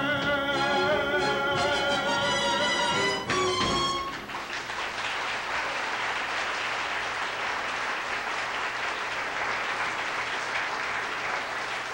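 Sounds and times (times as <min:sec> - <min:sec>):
audience applauding: 0:03.0 - 0:11.9.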